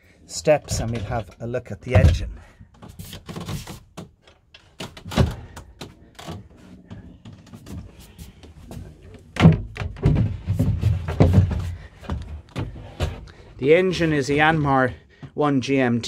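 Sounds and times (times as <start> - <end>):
wooden steps knocking and thudding: 1.9 - 13.3.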